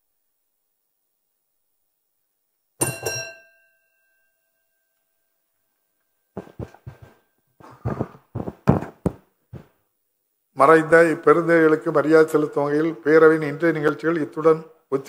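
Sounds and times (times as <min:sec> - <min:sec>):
knocks on wooden benches: 0:06.4 - 0:09.7.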